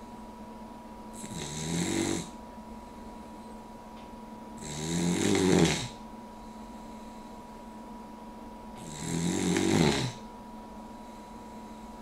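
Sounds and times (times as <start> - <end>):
dog snoring: 1.2 - 2.4, 4.6 - 6.0, 8.8 - 10.3.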